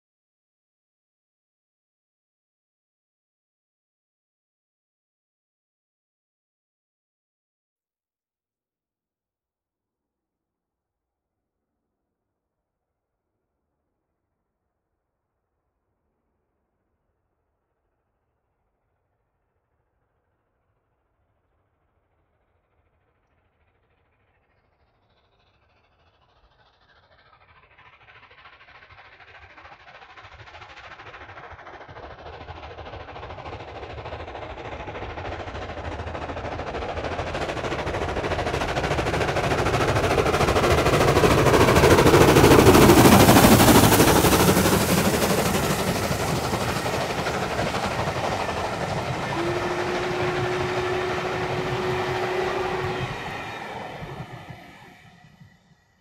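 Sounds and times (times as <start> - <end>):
steam locomotive exhaust beats: 30.3 - 55.8
train coaches rolling past: 32.8 - 55.7
steady whistle note: 39.6 - 55.7.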